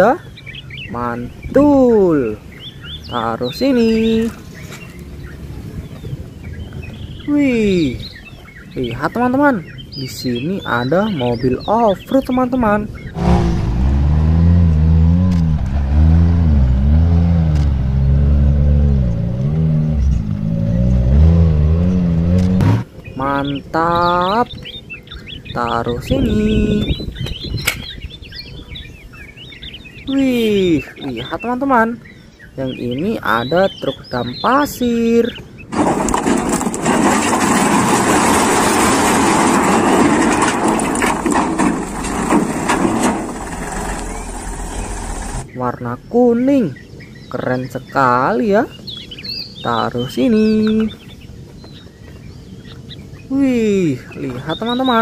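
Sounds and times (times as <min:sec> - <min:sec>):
off-road vehicle engine revving: 0:00.2 - 0:08.8, 0:12.9 - 0:27.1, 0:35.2 - 0:45.6
rocks sliding and clattering: 0:35.7 - 0:45.5.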